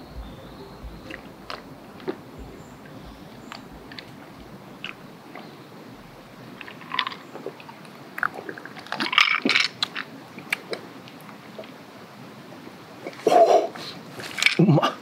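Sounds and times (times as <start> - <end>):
mouth clicks: 0.0 - 9.1.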